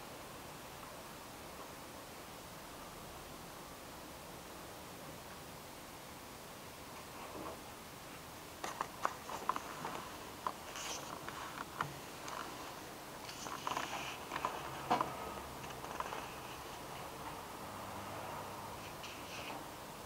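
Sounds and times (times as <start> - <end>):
paper rustling: 8.6 - 17.2
pen marking paper: 8.7 - 12.6, 13.2 - 17.1.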